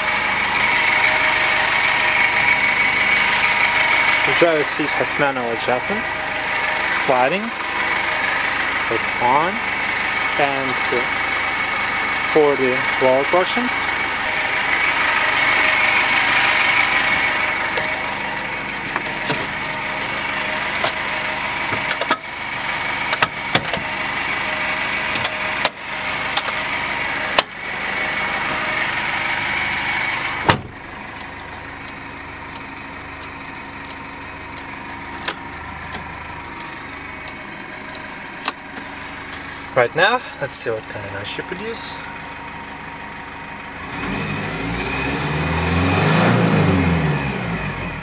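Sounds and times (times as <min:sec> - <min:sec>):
diesel engine idling: 0:00.0 - 0:48.0
door slamming: 0:30.5 - 0:30.8.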